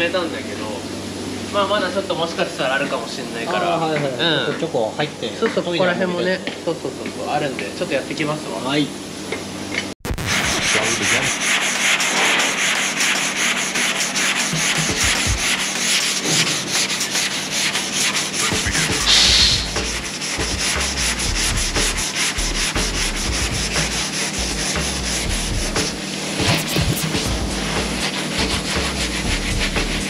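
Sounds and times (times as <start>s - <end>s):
sandpaper rubbing: 10.3s - 30.0s.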